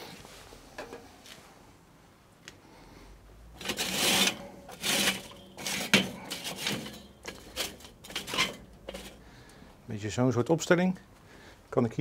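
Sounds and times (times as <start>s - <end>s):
charcoal clinking in metal baskets: 3.6s - 9.6s.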